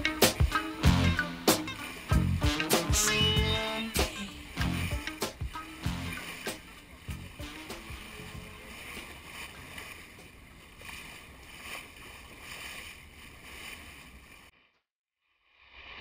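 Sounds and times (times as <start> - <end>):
water splashing along a hull: 0.0 - 14.6.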